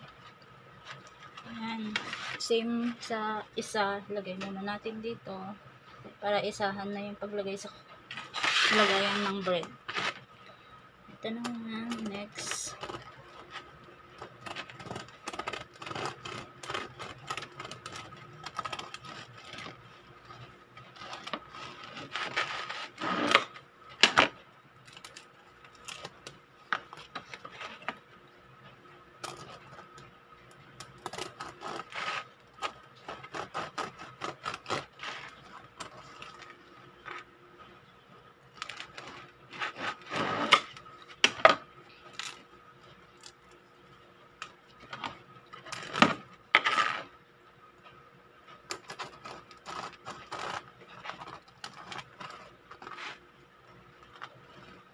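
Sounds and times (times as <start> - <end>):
faint steady hum: 0.0 - 54.9
bread knife sawing crusty loaf: 8.3 - 10.2, 14.4 - 19.6, 21.0 - 23.5, 31.1 - 36.0, 48.9 - 52.0.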